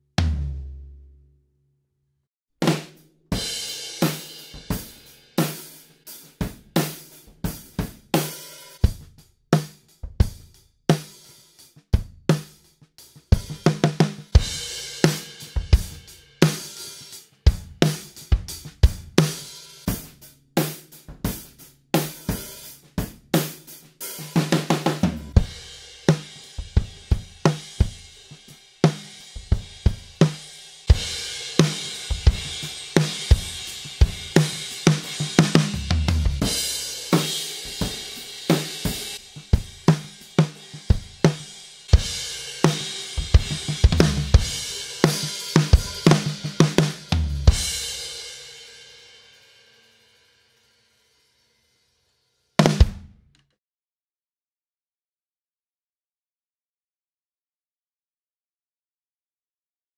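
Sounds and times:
drum kit playing: 0.2s - 0.8s, 2.6s - 49.4s, 52.6s - 53.1s.

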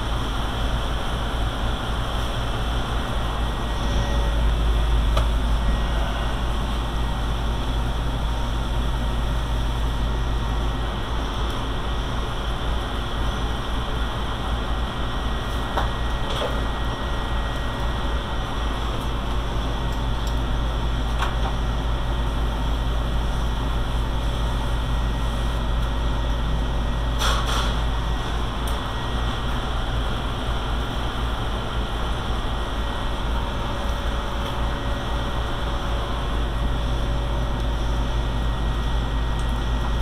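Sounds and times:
low machine hum: 0.0s - 40.0s
faint high whine: 2.4s - 7.7s.

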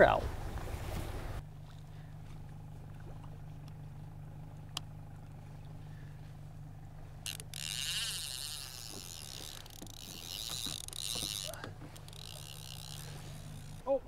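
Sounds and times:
outboard motor droning: 0.0s - 14.0s
fishing reel whirring: 6.6s - 14.0s.

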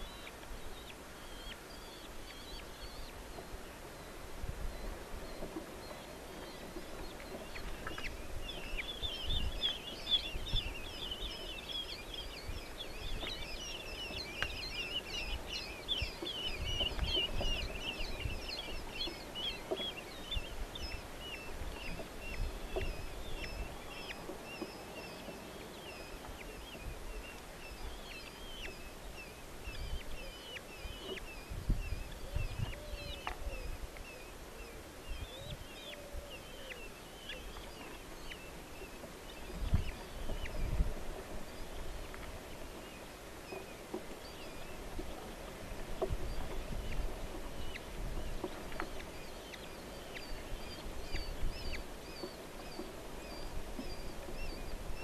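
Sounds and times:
falcon chicks begging calls: 5.9s - 40.9s.

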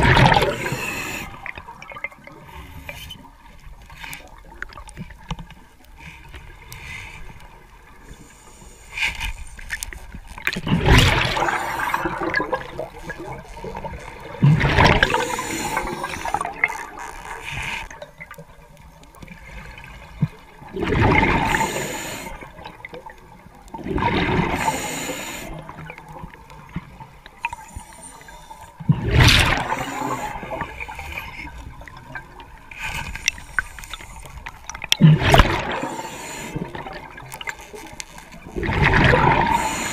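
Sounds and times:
exhaled bubbles gurgling underwater: 0.0s - 8.7s, 10.0s - 39.9s
underwater background: 0.0s - 39.9s.

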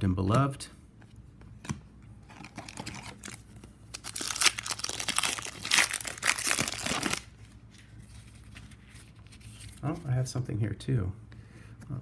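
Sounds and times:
foil wrapper crinkling and tearing: 2.5s - 7.4s.

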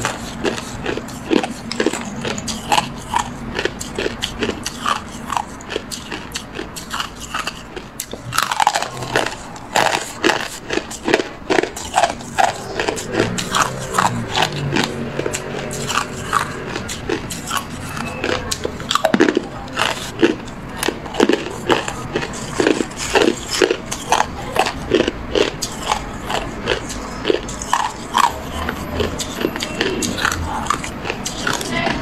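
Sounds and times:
ice being chewed: 0.0s - 32.0s.

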